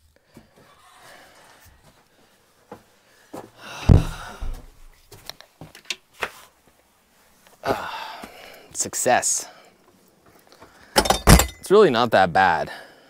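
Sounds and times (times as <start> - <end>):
footsteps and scuffing: 0.2 - 8.4
heavy thump: 3.8 - 4.8.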